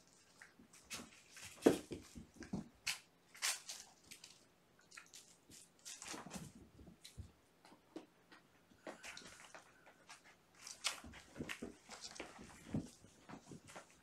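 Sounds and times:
kittens thumping and scuffling: 5.5s - 14.0s.

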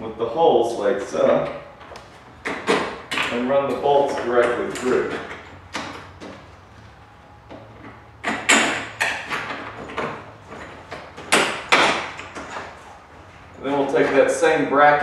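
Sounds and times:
bolts clattering on metal roof: 1.2s - 6.5s, 7.5s - 12.9s.

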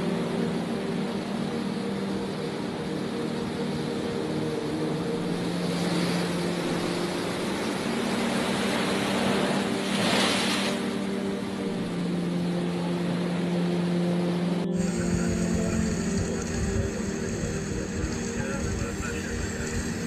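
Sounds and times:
steady low drone: 0.0s - 20.0s
waves breaking against pier: 5.4s - 11.2s
wind rushing: 14.8s - 20.0s.

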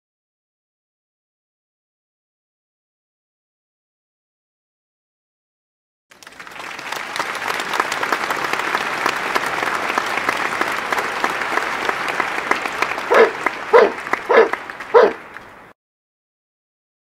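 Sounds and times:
crowd applause: 6.1s - 15.8s.

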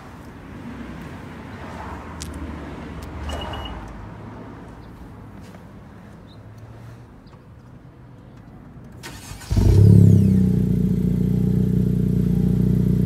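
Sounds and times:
short high beep: 3.3s - 3.8s.

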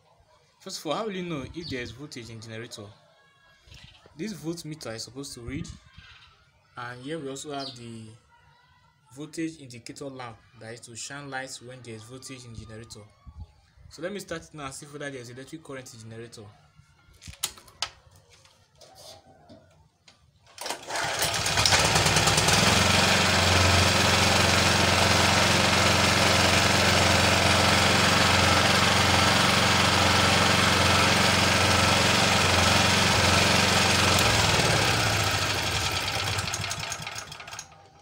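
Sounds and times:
petrol generator engine running: 20.6s - 37.8s.

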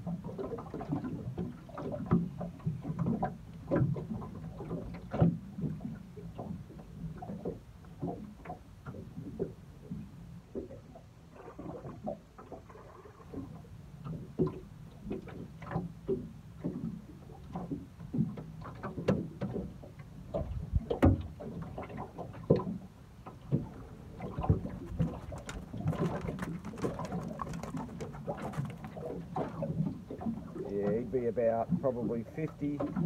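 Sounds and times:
low steady hum: 0.0s - 33.0s
fish splashing: 23.4s - 30.7s.

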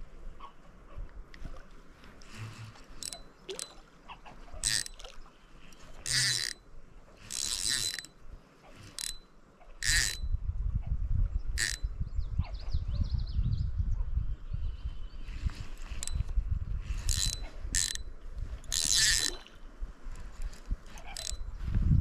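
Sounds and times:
fishing reel drag buzzing: 2.1s - 10.3s, 11.5s - 11.9s, 15.4s - 21.8s.

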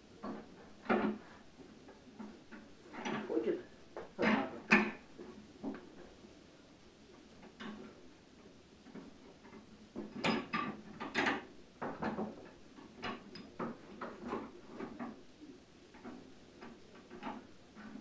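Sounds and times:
metal clicks and clanks: 2.2s - 3.5s, 9.4s - 15.2s.

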